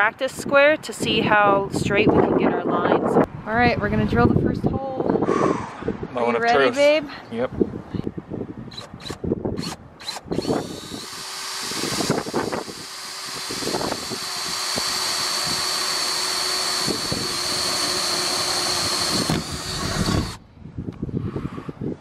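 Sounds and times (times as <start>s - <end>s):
cordless drill boring through metal: 8.7s - 20.4s.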